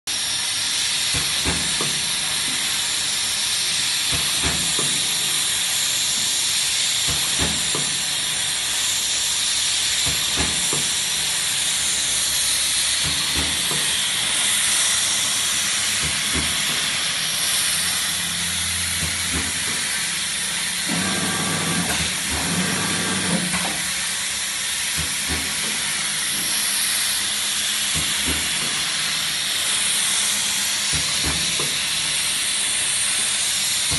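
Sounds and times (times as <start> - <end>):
machine hiss: 0.1 - 33.9
forming machine thumping rhythmically: 9.8 - 18.2, 18.8 - 33.9.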